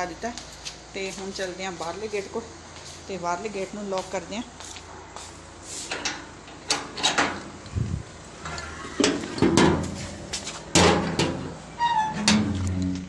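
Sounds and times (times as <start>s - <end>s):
metal gate clanking shut: 6.0s - 7.4s, 10.7s - 13.0s.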